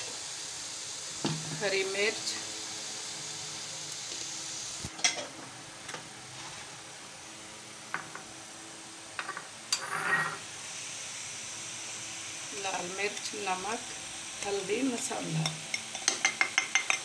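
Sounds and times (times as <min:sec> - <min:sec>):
glass bowl clinking on metal pot: 0:15.4 - 0:17.0.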